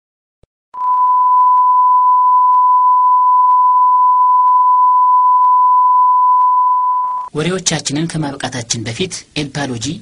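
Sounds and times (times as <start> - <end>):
steady electronic beep tone: 0.8 - 7.3.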